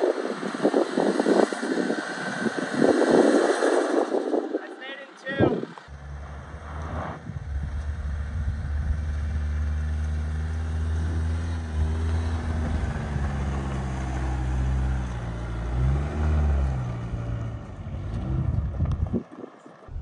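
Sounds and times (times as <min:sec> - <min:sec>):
truck engine running under load: 0:05.8 - 0:18.9.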